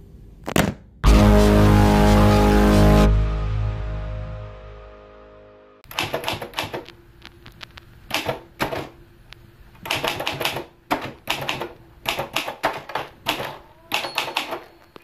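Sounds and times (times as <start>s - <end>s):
typewriter key strikes: 9.8s - 14.7s.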